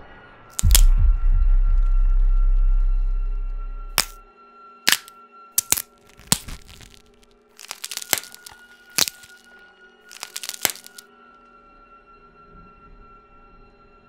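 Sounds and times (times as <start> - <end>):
sharp cracking and crunching: 0.6 - 1.0, 3.9 - 4.2, 4.9 - 9.5, 10.1 - 11.0
droning music bed: 0.8 - 4.6.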